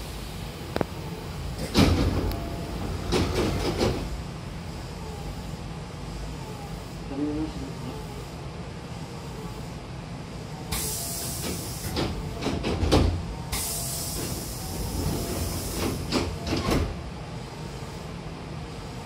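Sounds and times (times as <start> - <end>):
train doors sliding shut: 0.0 - 4.4, 10.7 - 17.1
air hiss: 10.6 - 12.6, 13.4 - 16.9.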